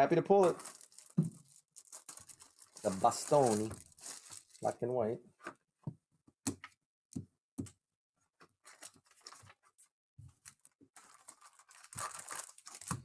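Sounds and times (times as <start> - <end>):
foil wrappers crinkling: 0.3 - 4.7, 8.7 - 9.5, 10.4 - 13.0.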